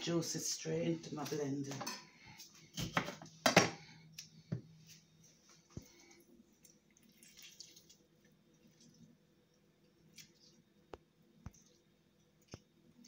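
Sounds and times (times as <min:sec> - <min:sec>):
lemon juice dripping: 0:06.5 - 0:13.0.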